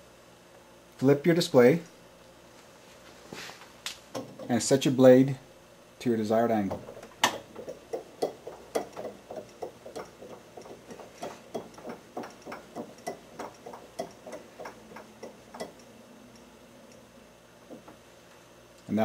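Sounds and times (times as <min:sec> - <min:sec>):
short evenly spaced ticks: 0:07.6 - 0:17.1.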